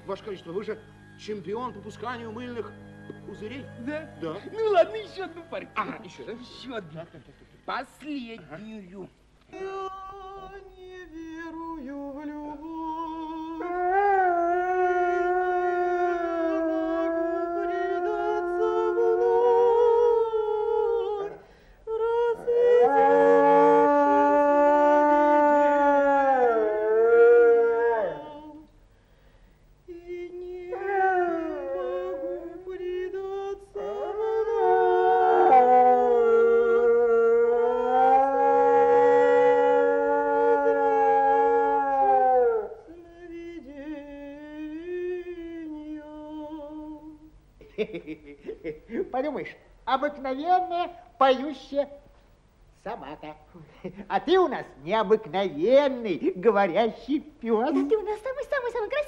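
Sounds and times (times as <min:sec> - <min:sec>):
wavering hum: 0:00.0 - 0:06.3
music: 0:00.0 - 0:07.3
dog howling: 0:13.5 - 0:21.4, 0:22.3 - 0:28.6, 0:30.7 - 0:33.0, 0:33.7 - 0:42.9.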